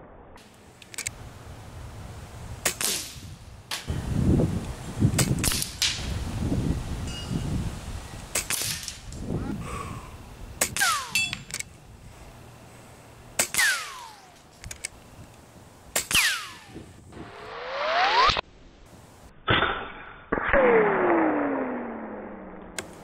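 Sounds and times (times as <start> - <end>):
small clicks: 0.8 - 1.2, 13.4 - 15.4
air rifle shots: 2.6 - 3.9, 5.2 - 6.1, 8.3 - 9.1, 10.6 - 11.6, 13.4 - 14.4, 15.9 - 16.8.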